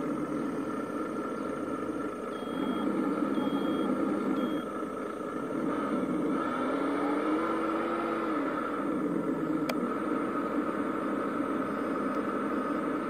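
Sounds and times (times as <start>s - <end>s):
simulated truck engine running: 0.0s - 13.0s
reversing beeper beeps: 2.3s - 4.7s.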